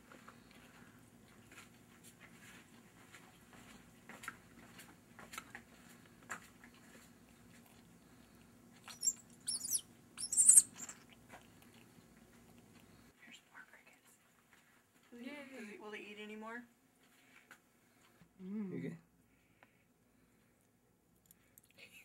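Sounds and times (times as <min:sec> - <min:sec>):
nestling woodpecker begging calls: 0:08.9 - 0:11.0.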